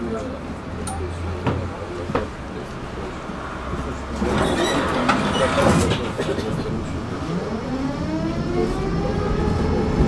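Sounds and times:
bus running: 0.0 - 10.0
tram rolling on rails: 0.0 - 10.0
tram motor hum rising: 6.7 - 10.0.

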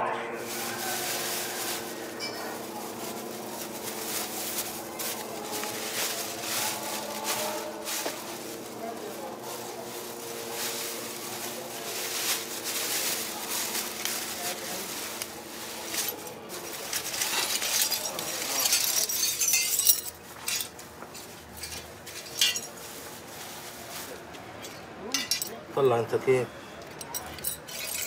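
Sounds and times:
plastic bag crinkling: 0.4 - 24.3
metal fragments clattering on concrete: 1.0 - 2.7, 15.9 - 22.8, 24.6 - 25.6, 26.9 - 28.0.

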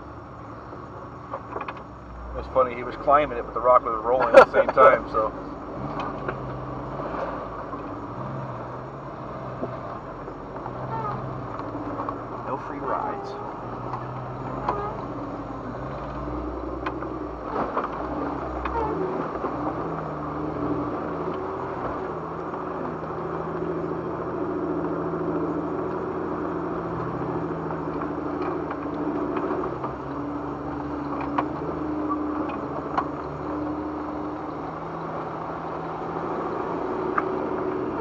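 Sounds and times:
car engine running at low revs: 0.0 - 38.0
sharp clicks and knocks: 1.2 - 1.9, 5.9 - 6.6.

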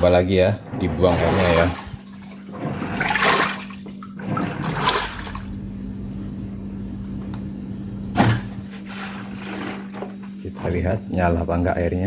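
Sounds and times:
water draining from washing machine: 0.0 - 5.6
steady hum: 0.0 - 12.0
water splash: 1.0 - 5.5.

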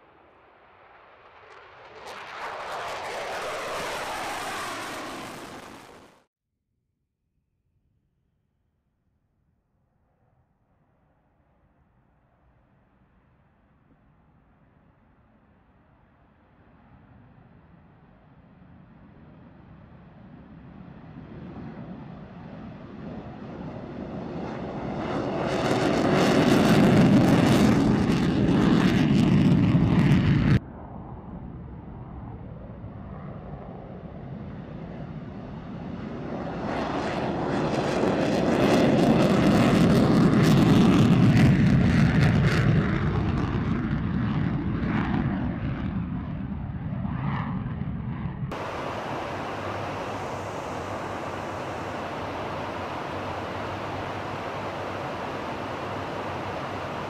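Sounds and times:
fighter jet afterburner takeoff: 0.0 - 6.3, 19.7 - 57.0
rushing hiss of airflow: 48.6 - 57.0.

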